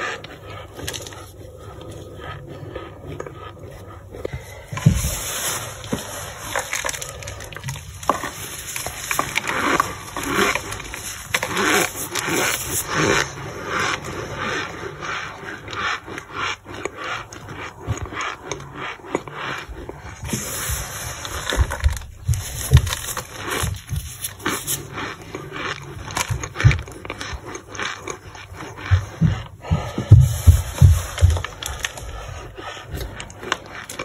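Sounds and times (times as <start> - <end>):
crunching of dry powder: 0.0 - 34.0
glove rubbing on plastic: 0.0 - 34.0
dull thumps: 28.8 - 31.9.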